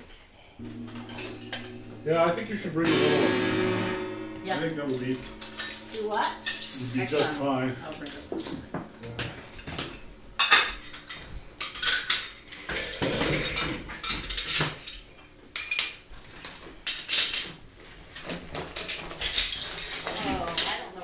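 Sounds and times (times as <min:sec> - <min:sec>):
sharp knocks: 0:00.6 - 0:06.6
metal and glass clinking: 0:04.8 - 0:15.0, 0:15.6 - 0:17.6, 0:18.6 - 0:20.8.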